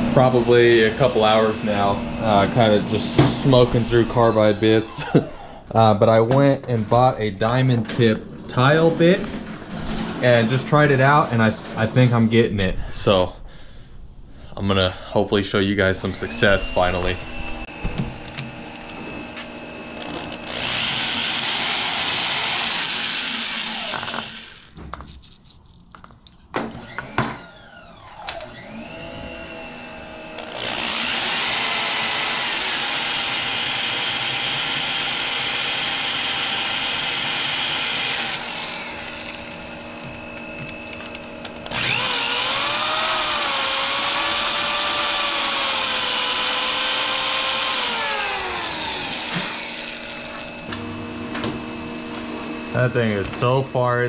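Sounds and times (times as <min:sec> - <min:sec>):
electric drill grinding into metal: 0:00.0 - 0:05.5, 0:16.0 - 0:24.8, 0:26.6 - 0:54.0.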